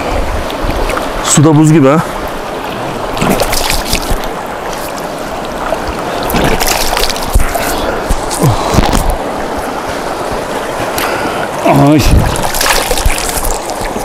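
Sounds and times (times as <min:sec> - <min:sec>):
stream water running: 0:00.0 - 0:14.0
hands splashing water: 0:03.2 - 0:05.0, 0:06.2 - 0:09.2, 0:12.2 - 0:14.0.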